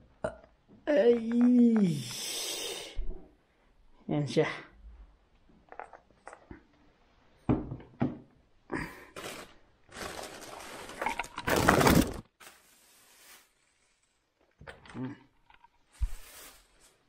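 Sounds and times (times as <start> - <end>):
plastic-wrapped parts being handled: 9.2 - 14.4.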